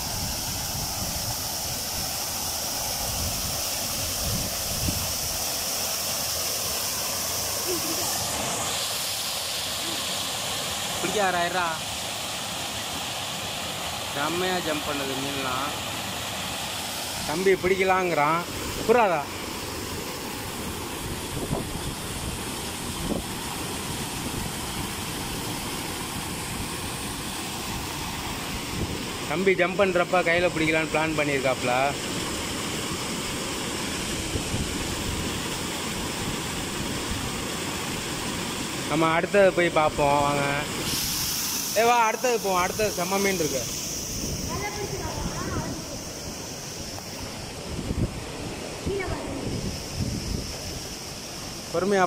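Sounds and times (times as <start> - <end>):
water gushing and splashing: 0.0 - 52.0.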